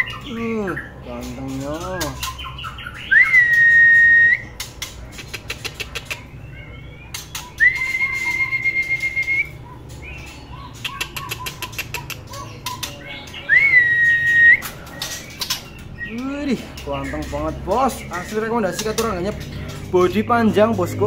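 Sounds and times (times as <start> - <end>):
bird sharp clicking notes: 1.2 - 6.3, 7.1 - 20.7.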